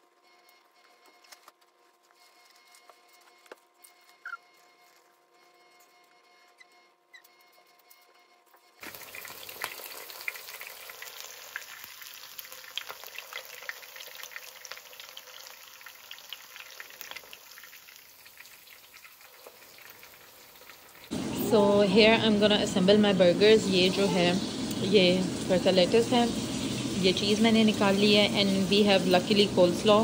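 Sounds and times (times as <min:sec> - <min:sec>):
chicken sizzling in oil: 0:08.8 - 0:30.0.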